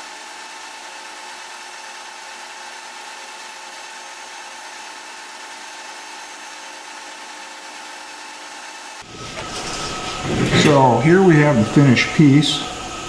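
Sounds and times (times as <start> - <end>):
metal lathe whine: 8.9 - 13.0
abrasive paper hissing on steel: 9.0 - 13.0.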